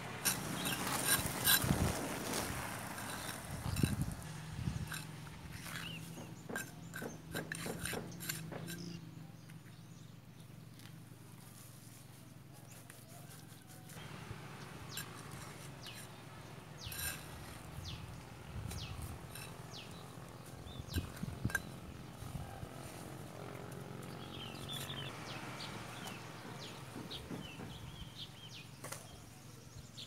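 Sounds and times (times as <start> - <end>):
outdoor background noise: 0.0 - 30.0
trowel tapping on concrete blocks: 6.1 - 8.9.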